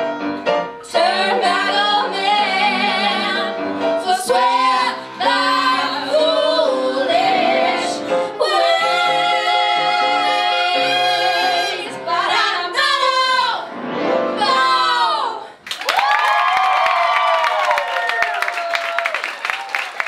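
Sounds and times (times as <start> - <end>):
piano accompaniment: 0.0 - 15.4.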